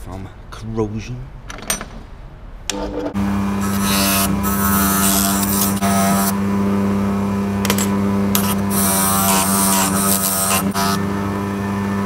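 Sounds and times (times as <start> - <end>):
bench grinder motor humming: 2.7 - 12.0.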